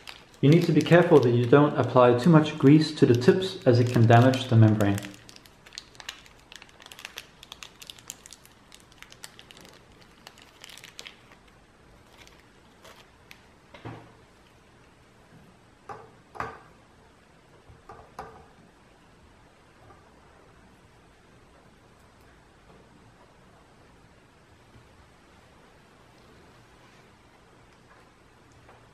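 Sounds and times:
plastic sachet crinkling: 0:00.0 - 0:13.5.

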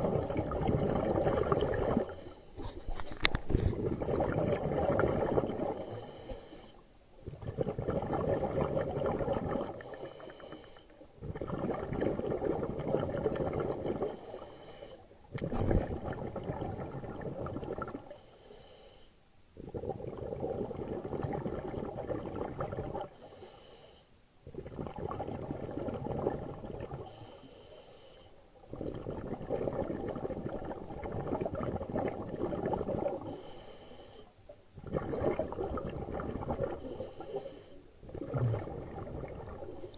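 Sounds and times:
exhaust bubbling underwater: 0:00.0 - 0:06.0, 0:07.2 - 0:10.0, 0:11.2 - 0:14.2, 0:15.3 - 0:18.1, 0:19.6 - 0:23.2, 0:24.5 - 0:27.2, 0:28.6 - 0:33.4, 0:34.8 - 0:37.4, 0:38.0 - 0:39.9
regulator hissing inhale: 0:02.0 - 0:03.0, 0:05.8 - 0:06.8, 0:09.8 - 0:10.9, 0:14.2 - 0:15.1, 0:18.1 - 0:19.2, 0:23.2 - 0:24.2, 0:27.1 - 0:28.4, 0:33.2 - 0:34.4, 0:36.8 - 0:37.9.

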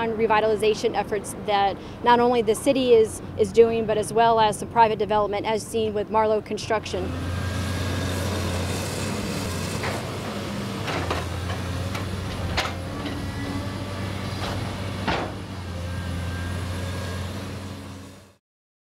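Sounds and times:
excavator diesel engine running: 0:06.7 - 0:18.3.

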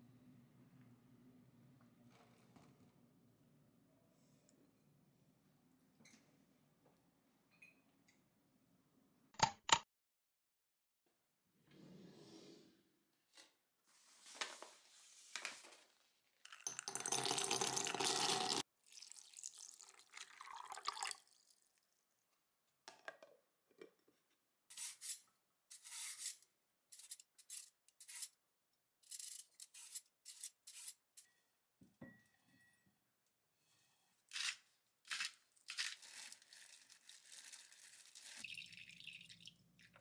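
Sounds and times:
drawer sliding open: 0:11.6 - 0:12.7
water running: 0:16.5 - 0:21.5, 0:37.6 - 0:40.0.

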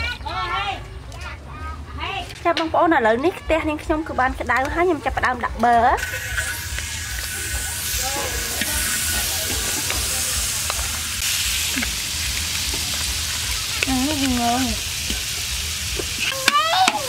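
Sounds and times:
butter sizzling in a wok: 0:05.9 - 0:17.0.

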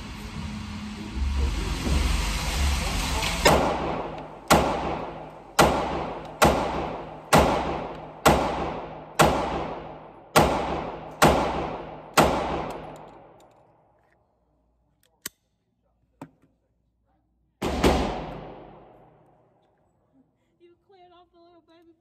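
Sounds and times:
handgun shots: 0:03.5 - 0:13.4.

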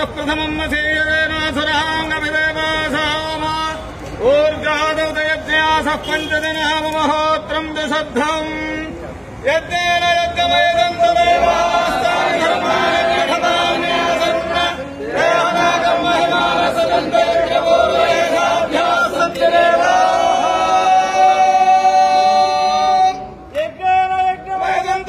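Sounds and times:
group chanting in long notes: 0:11.2 - 0:23.2.

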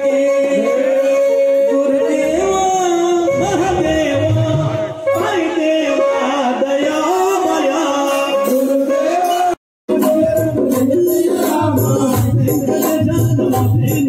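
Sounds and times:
man singing over loudspeakers: 0:00.0 - 0:14.0.

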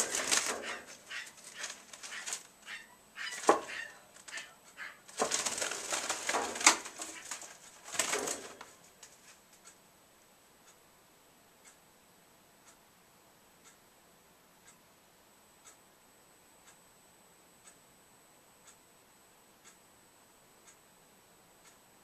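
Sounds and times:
bird fluttering in cage: 0:00.0 - 0:02.5, 0:05.1 - 0:08.7
sharp knocks: 0:03.4 - 0:03.8.

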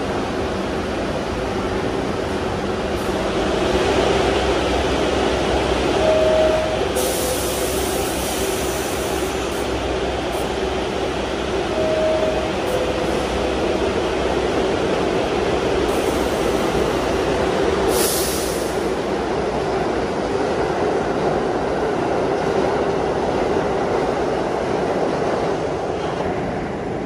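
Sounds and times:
subway train idling hum: 0:00.0 - 0:27.0
air hissing: 0:07.0 - 0:09.7, 0:17.9 - 0:18.8.

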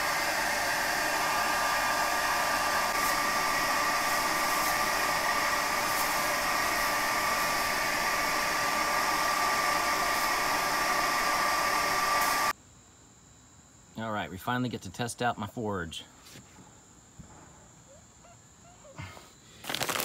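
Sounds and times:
hair dryer running: 0:00.0 - 0:12.5.

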